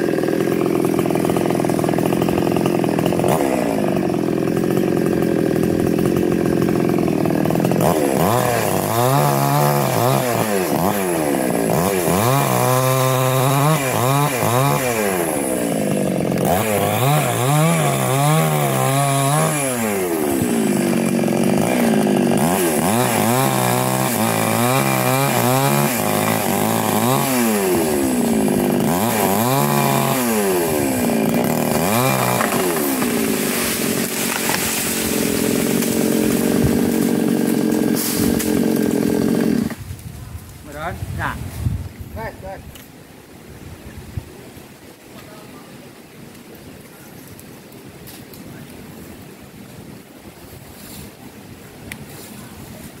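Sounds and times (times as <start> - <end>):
small chainsaw cutting and revving: 0.0 - 40.0.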